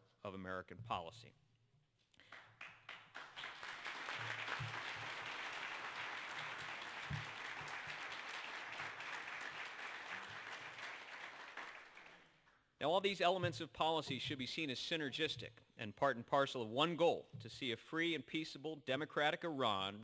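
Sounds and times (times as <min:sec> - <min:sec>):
audience applauding: 0:02.2 - 0:12.3.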